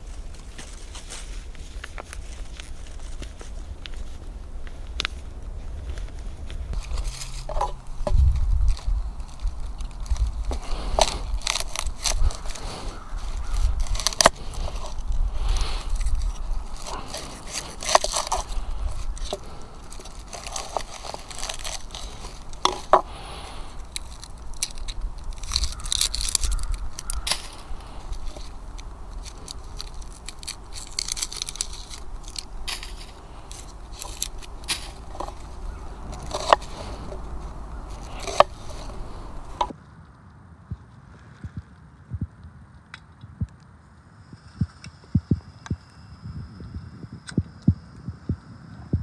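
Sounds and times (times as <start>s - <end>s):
knife scraping on wooden board: 32.3s - 39.7s.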